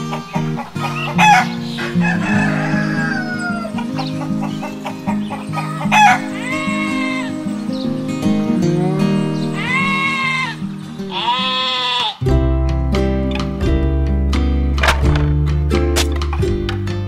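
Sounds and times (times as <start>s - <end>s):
chickens clucking: 0.0s - 10.7s
background music: 0.0s - 17.0s
rooster crowing: 0.8s - 7.4s.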